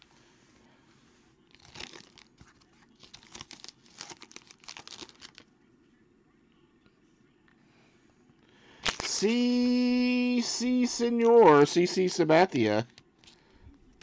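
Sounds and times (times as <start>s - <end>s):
foil wrapper crinkling and tearing: 1.5s - 5.5s, 8.8s - 10.0s.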